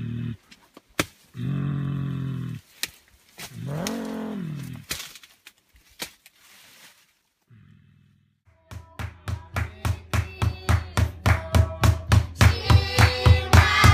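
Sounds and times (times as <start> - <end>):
gorilla hummed grunts: 0.0 - 0.5, 1.4 - 2.6.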